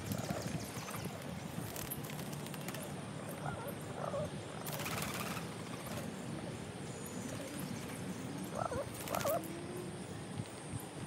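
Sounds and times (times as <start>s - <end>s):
pigeon wings fluttering: 0.0s - 3.1s, 4.6s - 6.2s, 8.7s - 9.5s
low background hum: 0.0s - 11.0s
short curving pigeon calls: 8.5s - 9.8s
pigeon cooing: 8.5s - 10.0s.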